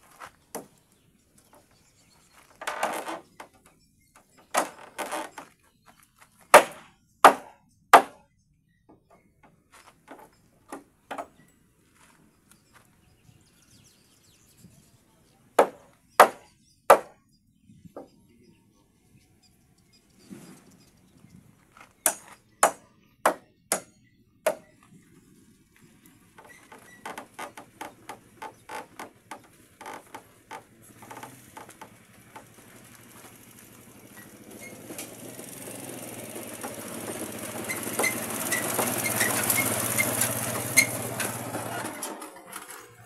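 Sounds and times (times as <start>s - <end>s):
hammer striking timber: 6.5s - 8.2s, 15.6s - 17.2s, 22.1s - 24.7s.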